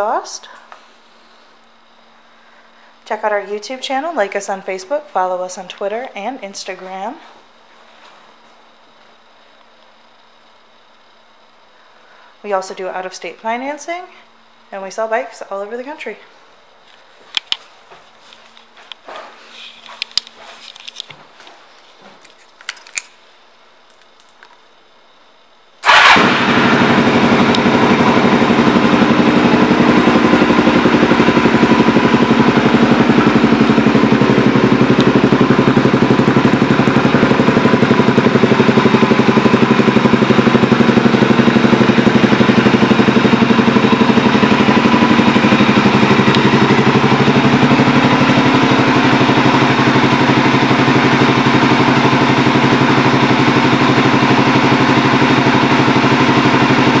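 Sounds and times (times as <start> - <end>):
motorcycle engine idling: 25.8 - 57.0.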